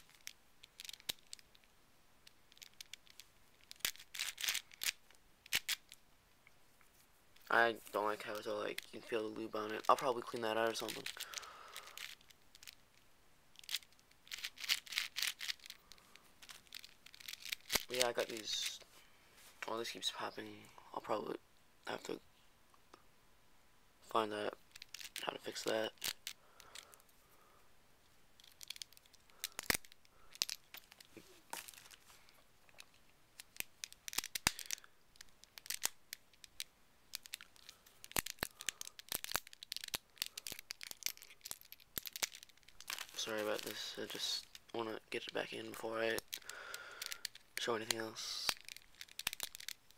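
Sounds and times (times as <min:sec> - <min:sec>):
plastic puzzle clicking: 0:00.0 - 0:06.0, 0:10.6 - 0:13.0, 0:13.6 - 0:18.0, 0:24.7 - 0:26.9, 0:28.4 - 0:32.0, 0:32.7 - 0:44.7, 0:46.1 - 0:49.9.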